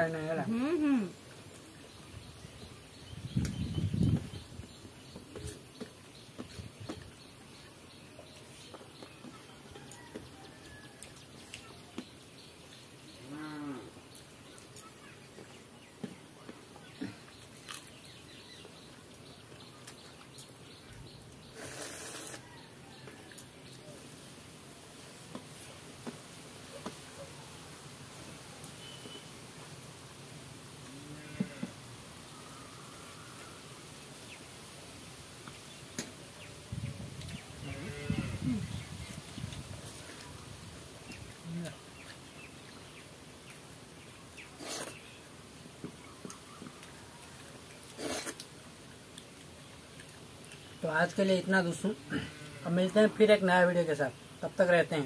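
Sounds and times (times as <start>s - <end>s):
hiss-like rustle: 19.9s - 50.7s
cow mooing: 30.9s - 31.7s, 52.0s - 52.8s.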